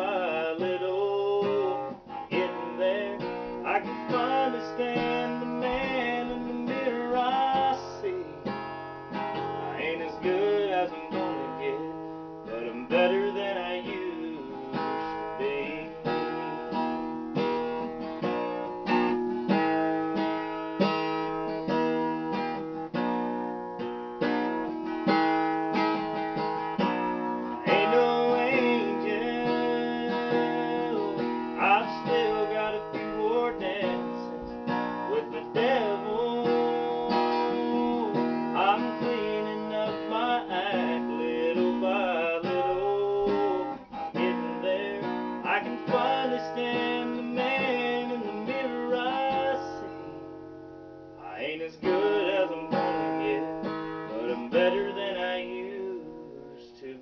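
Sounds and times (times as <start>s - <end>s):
man singing softly: 0.0s - 8.5s, 9.6s - 16.6s, 27.6s - 50.0s, 51.2s - 57.0s
acoustic guitar strumming: 0.0s - 57.0s.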